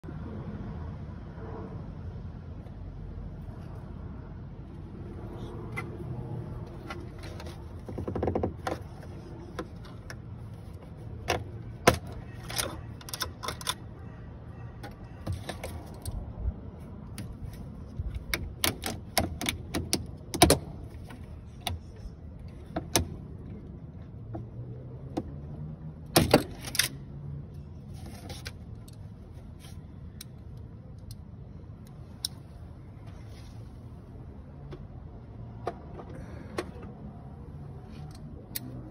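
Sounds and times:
clicks and rattles of plastic parts: 0:06.6 - 0:13.9.

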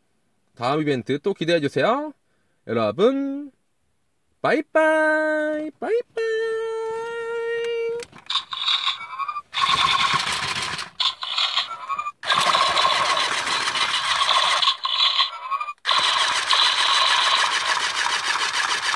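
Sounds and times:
electronic blaster sound effects: 0:08.3 - 0:17.5.

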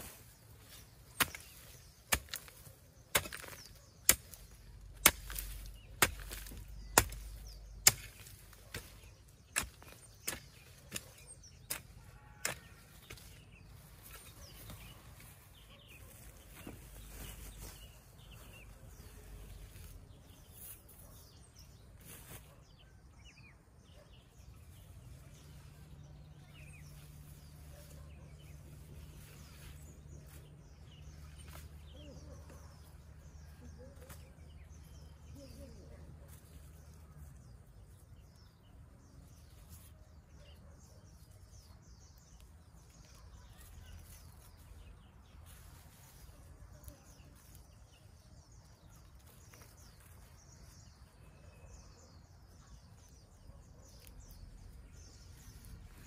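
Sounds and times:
faint scraping of soil: 0:00.0 - 0:22.8, 0:26.5 - 0:31.9, 0:42.9 - 0:48.1
hoe chopping into soil: 0:01.0 - 0:13.4.

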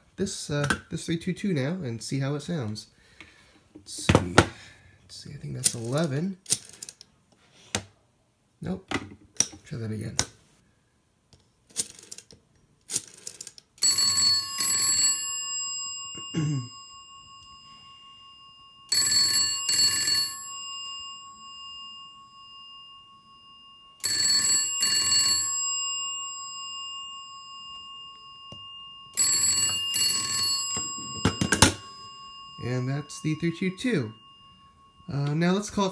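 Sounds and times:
bell gongs humming: 0:13.8 - 0:35.9
telephone bells ringing: 0:13.8 - 0:35.9.

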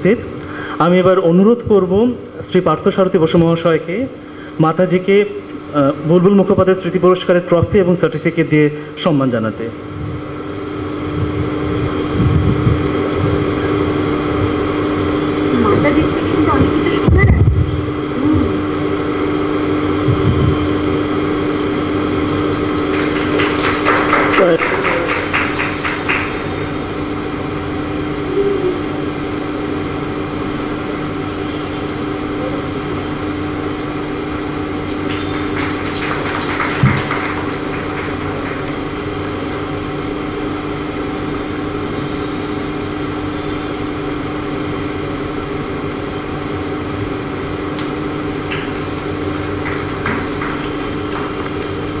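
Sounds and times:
steady electrical hum: 0:00.0 - 0:52.0.

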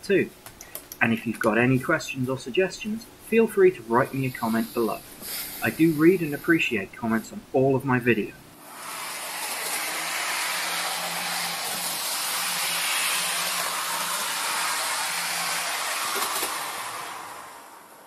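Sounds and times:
model train wheels on rail: 0:04.0 - 0:07.3, 0:08.6 - 0:18.0.

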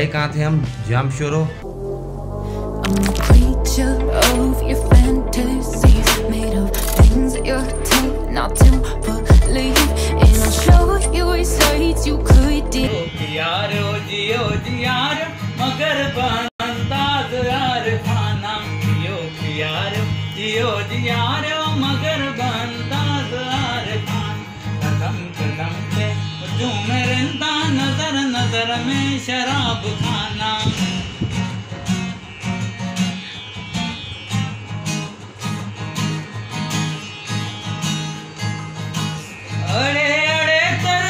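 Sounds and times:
acoustic guitar strumming: 0:01.6 - 0:41.0
man singing: 0:02.9 - 0:31.1, 0:39.6 - 0:41.0.

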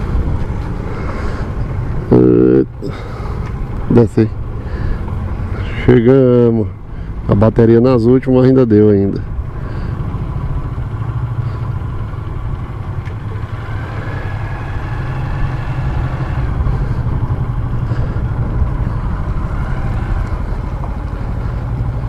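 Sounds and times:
motorcycle engine idling: 0:00.0 - 0:22.0.

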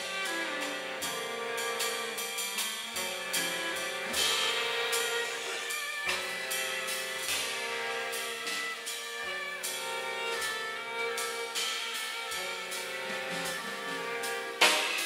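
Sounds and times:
drum kit playing: 0:00.0 - 0:15.0
saxophone: 0:00.0 - 0:15.0
violin and cello notes: 0:00.0 - 0:15.0
cymbal crash: 0:04.1 - 0:08.6.

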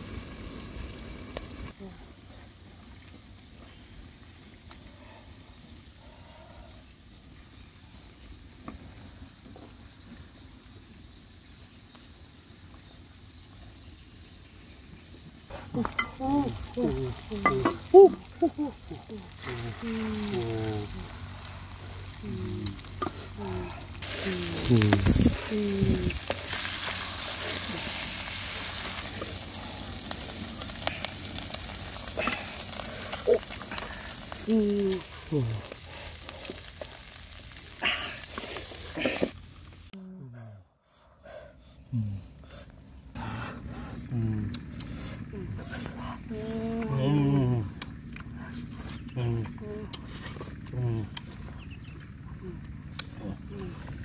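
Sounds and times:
food frying in wok: 0:00.0 - 0:01.8, 0:15.2 - 0:39.9
faint sizzling in pan: 0:00.0 - 0:39.9.

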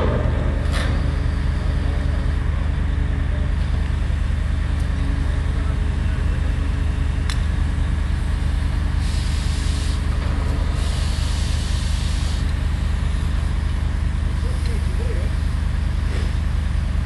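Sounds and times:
large engine droning: 0:00.0 - 0:17.0
bursts of hissing: 0:08.9 - 0:12.6.

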